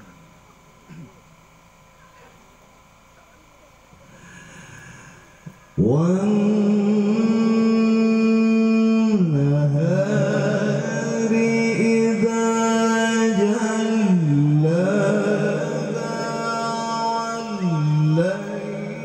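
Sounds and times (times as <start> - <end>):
man chanting into a microphone: 5.8 - 19.0.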